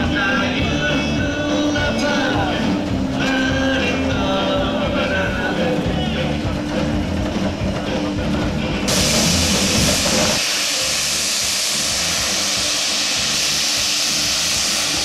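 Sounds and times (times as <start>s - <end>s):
steam locomotive hissing steam: 6.7s - 15.0s.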